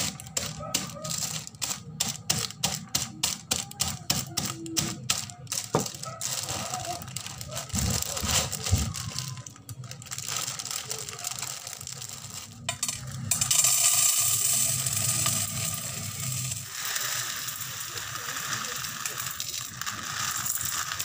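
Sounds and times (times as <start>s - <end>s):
plastic bag crinkling: 0.0s - 13.3s, 16.6s - 21.0s
rice pouring into metal bowl: 10.0s - 21.0s.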